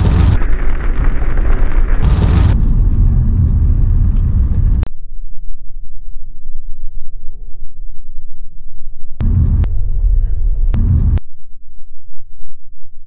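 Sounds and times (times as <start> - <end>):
rolling thunder: 0.0 - 4.9, 9.2 - 11.2.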